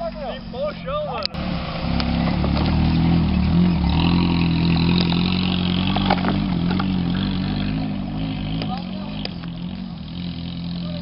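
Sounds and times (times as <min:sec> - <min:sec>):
car engine running: 0:01.3 - 0:11.0
board dragging over brush: 0:02.1 - 0:07.9.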